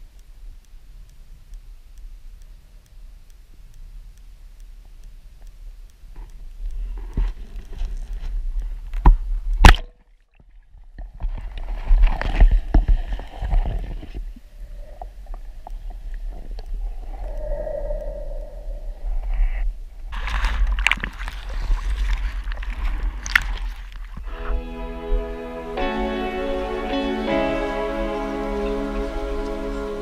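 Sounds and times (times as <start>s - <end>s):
muffled underwater water movement: 0.0s - 25.8s
water splashing and sloshing: 20.1s - 24.4s.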